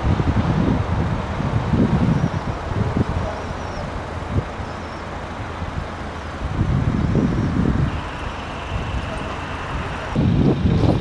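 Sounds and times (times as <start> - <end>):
road traffic rumble: 0.0 - 11.0
faint high whine: 7.4 - 10.2.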